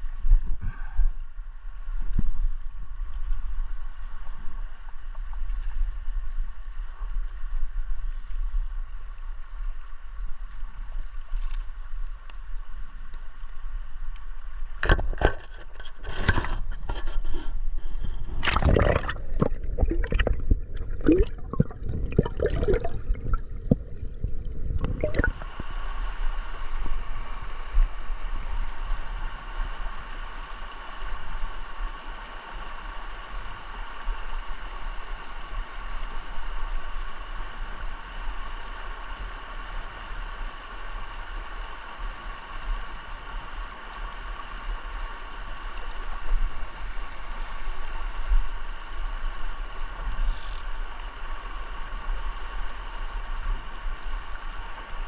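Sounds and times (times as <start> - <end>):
underwater gurgling and bubbling: 16.4 - 25.9
river rushing over stones: 18.4 - 24.2.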